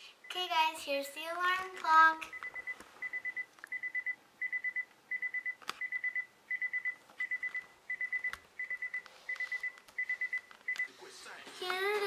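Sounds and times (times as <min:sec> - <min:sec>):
alarm clock beeping: 0:02.3 - 0:10.9.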